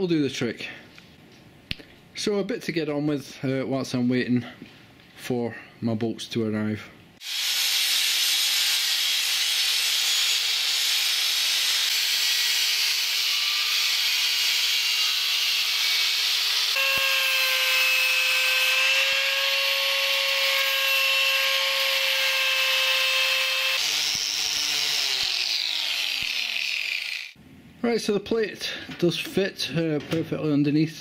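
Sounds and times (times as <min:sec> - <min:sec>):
angle grinder cutting metal: 0:07.2 - 0:27.4
wire brush grinder on metal: 0:07.2 - 0:27.4.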